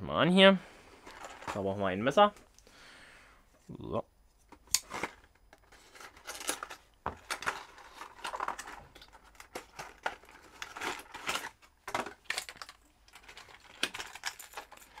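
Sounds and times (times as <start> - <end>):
plastic crinkling: 5.7 - 15.0.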